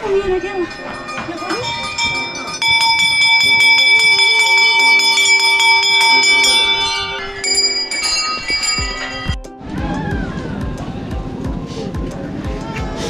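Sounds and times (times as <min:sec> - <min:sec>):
brass bells ringing: 0:00.0 - 0:09.4.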